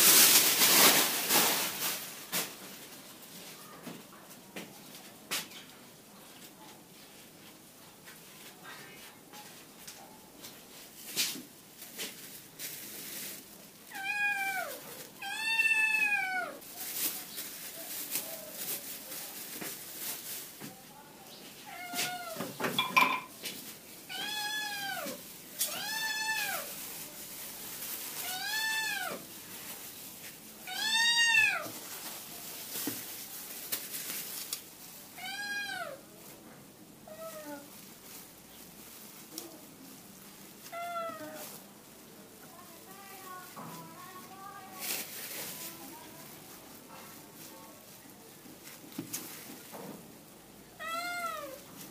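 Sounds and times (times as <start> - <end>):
cat meowing: 13.9 - 16.6, 24.1 - 26.7, 28.2 - 29.2, 30.6 - 31.7, 40.7 - 41.4, 50.8 - 51.6.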